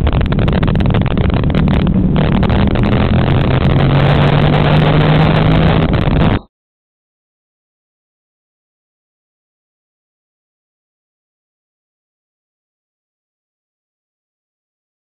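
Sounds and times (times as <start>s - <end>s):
engine running: 0.0s - 6.4s
loud rumble and crackling: 0.0s - 6.5s.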